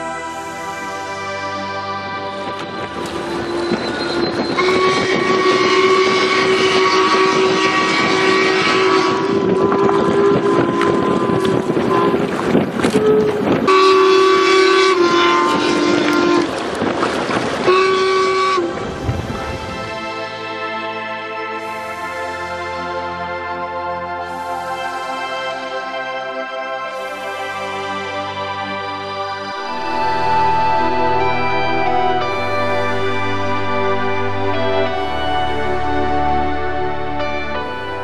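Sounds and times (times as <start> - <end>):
steam whistle blasts: 0.0 - 16.5, 17.6 - 38.0
steady steam hiss: 21.4 - 30.4.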